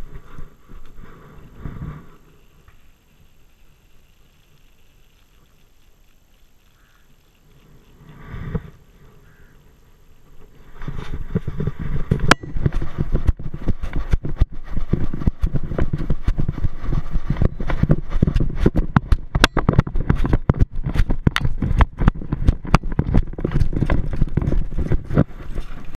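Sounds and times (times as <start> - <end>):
low rumble: 10.9 - 25.9.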